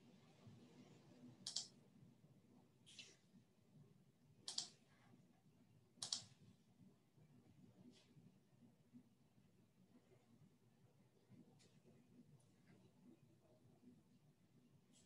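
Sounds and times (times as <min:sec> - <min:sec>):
faint short clicks: 0:04.5 - 0:04.7, 0:06.0 - 0:06.3.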